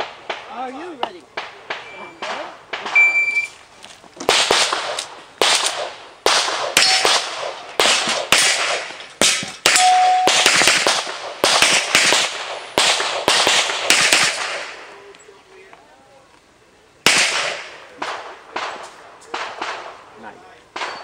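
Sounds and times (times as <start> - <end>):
handgun shots with echo: 4.3 - 14.7, 20.8 - 21.0.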